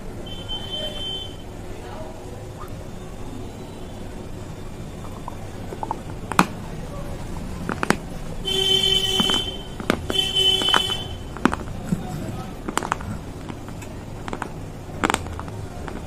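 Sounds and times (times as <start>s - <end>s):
vehicle horn honking: 0.2s - 1.5s, 8.4s - 11.4s
clay pots being chewed: 4.6s - 16.0s.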